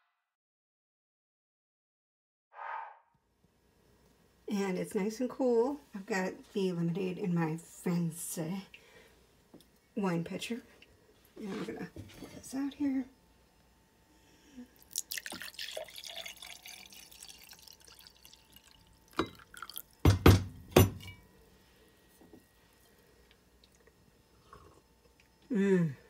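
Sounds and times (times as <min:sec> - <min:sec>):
liquid pouring into glass: 0:14.8 - 0:20.0.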